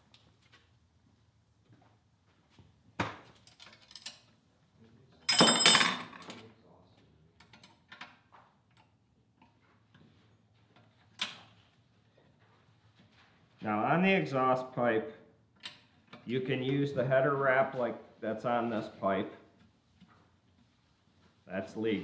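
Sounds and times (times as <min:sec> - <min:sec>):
ringing metal clatter: 0:05.3 - 0:06.1
metal tools clinking on workbench: 0:05.3 - 0:06.4.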